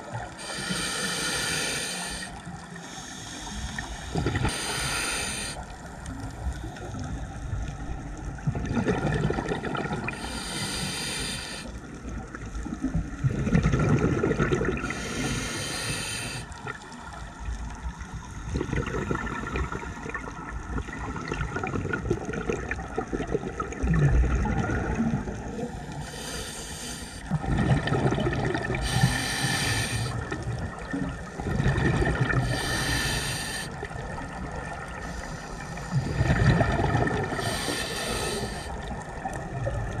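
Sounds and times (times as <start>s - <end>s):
regulator hiss on inhale: 0.2s - 7.0s, 10.1s - 12.0s, 14.8s - 16.8s, 25.5s - 27.4s, 28.7s - 30.4s, 32.3s - 34.1s, 34.8s - 36.4s, 37.3s - 39.4s
exhaust bubbles rumbling: 7.8s - 10.2s, 12.8s - 14.9s, 18.5s - 25.8s, 27.3s - 29.2s, 30.2s - 32.5s, 35.9s - 37.6s.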